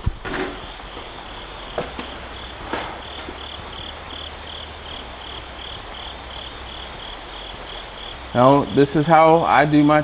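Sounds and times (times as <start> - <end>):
crickets chirping: 0.0 - 10.0.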